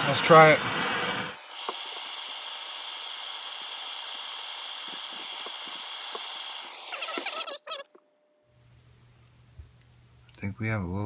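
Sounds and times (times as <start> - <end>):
torch flame hissing: 0.1 - 7.9.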